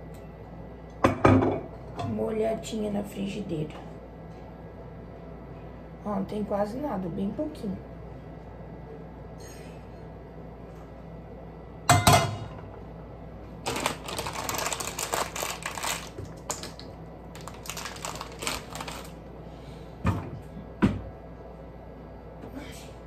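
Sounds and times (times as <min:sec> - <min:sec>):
plastic package crinkling: 0:13.6 - 0:19.2.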